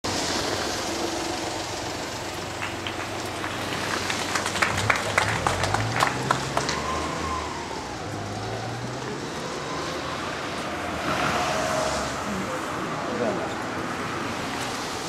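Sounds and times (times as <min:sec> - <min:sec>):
small crowd clapping: 0:02.5 - 0:07.4.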